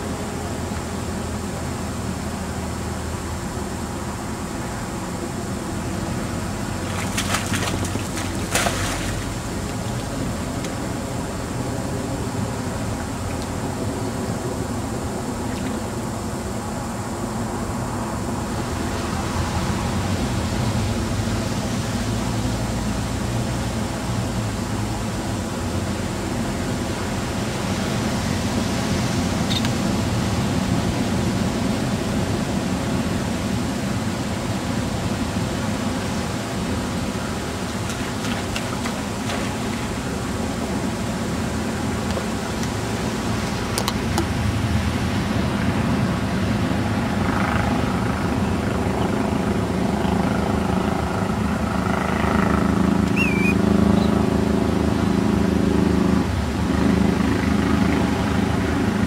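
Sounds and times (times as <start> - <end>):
engine rumble: 0.0 - 59.0
short high chirp: 53.1 - 53.6.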